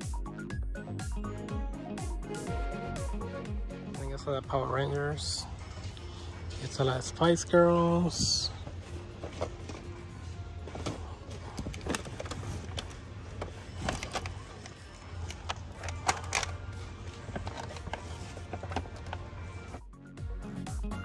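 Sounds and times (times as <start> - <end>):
toys clicking and rustling: 10.7 - 19.3.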